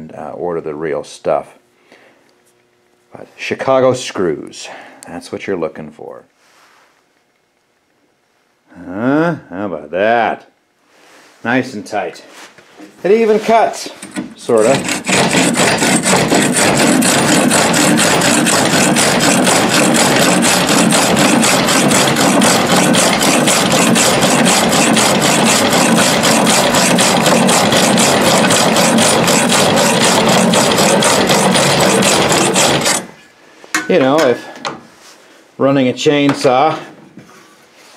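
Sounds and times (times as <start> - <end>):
handsaw rasping through log: 14.4 - 33.1.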